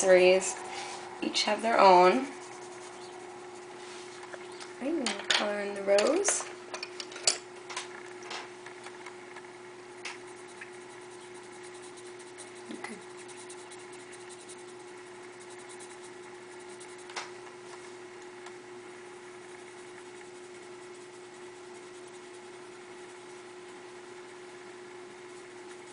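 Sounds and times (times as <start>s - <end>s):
pencil scratching on paper: 0.0s - 4.2s, 10.1s - 17.2s, 19.5s - 25.9s
faint hum: 0.0s - 25.9s.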